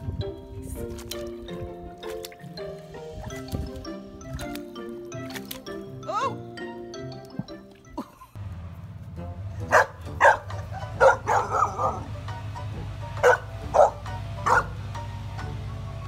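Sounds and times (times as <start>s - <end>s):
puppy barking: 9.6s - 12.1s, 13.2s - 14.8s.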